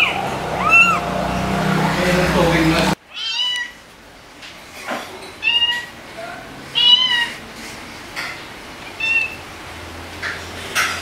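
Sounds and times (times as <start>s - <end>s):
cat meowing: 0.0s - 1.1s, 3.1s - 3.8s, 5.4s - 5.9s, 6.7s - 7.4s, 8.9s - 9.4s.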